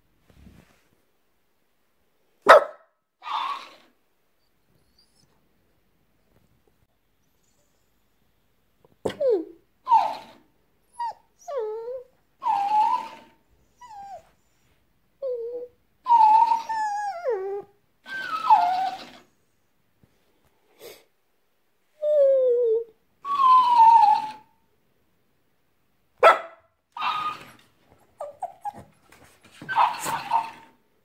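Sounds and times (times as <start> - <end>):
dog whining and yowling: 3.2 - 4.0, 9.1 - 14.5, 15.2 - 19.3, 22.0 - 24.5, 27.0 - 29.0, 29.6 - 30.8.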